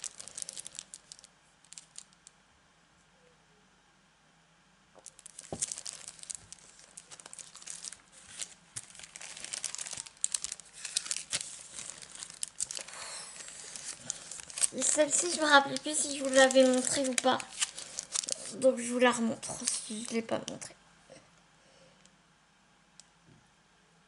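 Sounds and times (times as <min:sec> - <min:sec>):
plastic packaging crinkling: 0:00.0 - 0:02.3, 0:05.0 - 0:20.7.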